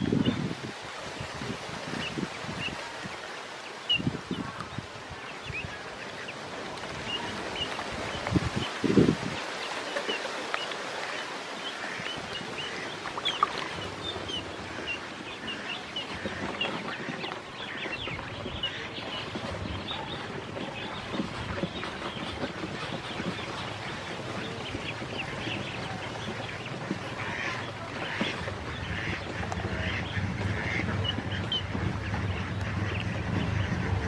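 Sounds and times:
ducklings peeping: 0.0 - 34.0
steady noisy hiss: 0.0 - 34.0.

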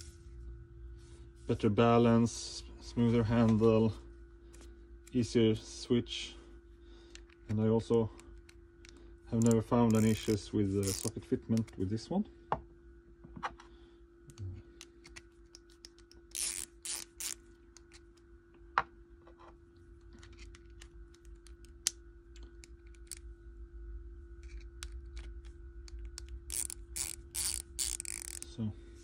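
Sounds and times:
ratchet rasping bursts: 9.3 - 11.2, 16.3 - 17.4, 26.5 - 28.4
ratchet clicking: 9.4 - 11.2, 16.3 - 17.4, 26.2 - 28.4.

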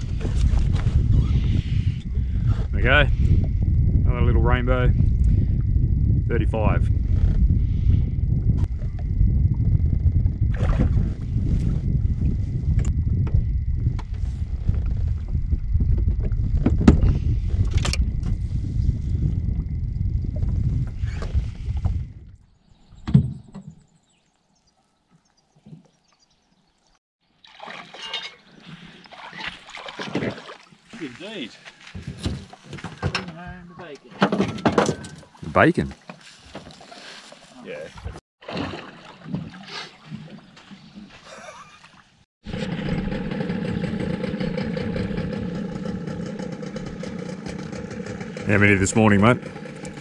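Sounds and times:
low rumble: 0.0 - 22.4, 42.5 - 50.0
water splashing around boat: 10.5 - 11.7, 27.2 - 31.5, 34.9 - 43.2
boat engine idling: 42.5 - 50.0.

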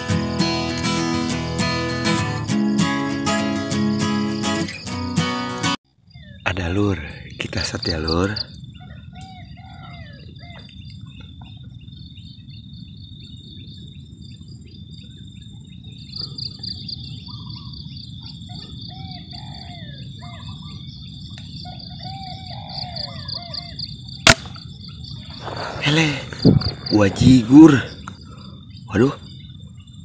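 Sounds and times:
pulsing insect trill: 0.0 - 5.1, 6.0 - 30.0
high buzz of insects: 0.0 - 5.2, 6.0 - 9.8, 10.4 - 30.0
birds chirping and calling: 6.0 - 30.0.

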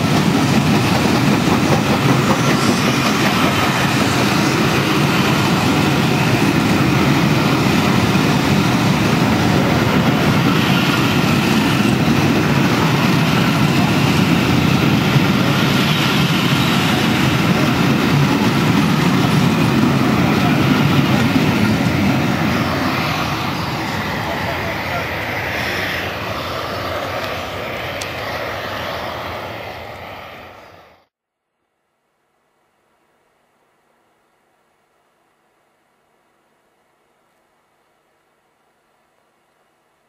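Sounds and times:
train wheels rumbling on rails: 0.0 - 31.0.

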